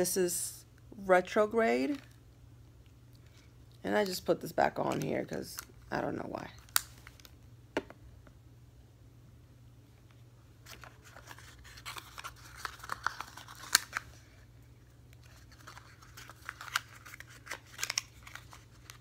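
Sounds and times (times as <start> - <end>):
packaging crinkling and rustling: 4.0 - 7.4, 10.6 - 14.3, 15.1 - 19.0.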